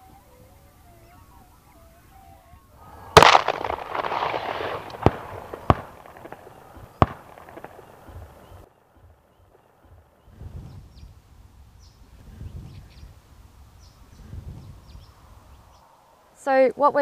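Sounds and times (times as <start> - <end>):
faint bird calls: 0.0 - 11.2
shotgun blasts: 3.0 - 8.6.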